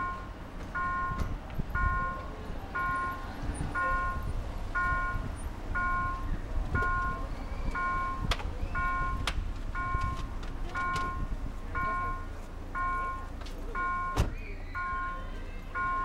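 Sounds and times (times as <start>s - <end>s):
level crossing warning bell: 0.0s - 16.0s
road traffic rumble: 0.0s - 16.0s.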